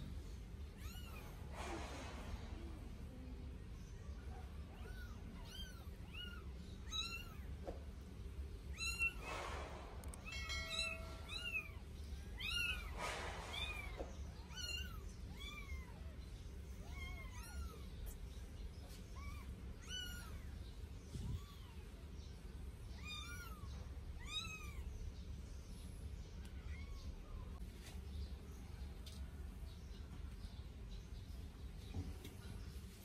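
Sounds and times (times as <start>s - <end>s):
brief rushes of noise: 1.5s - 3.0s, 9.1s - 11.2s, 12.8s - 14.7s.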